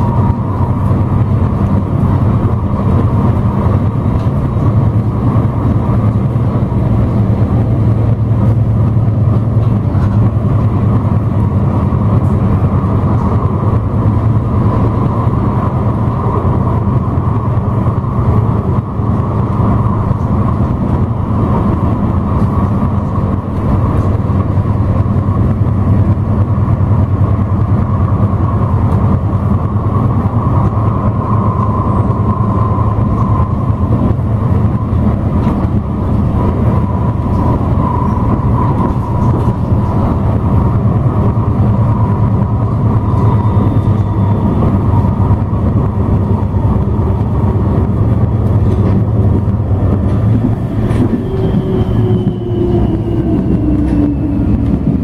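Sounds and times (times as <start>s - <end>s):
thin tram whine: 0.0s - 55.0s
tram wheels rumbling on rail: 0.0s - 55.0s.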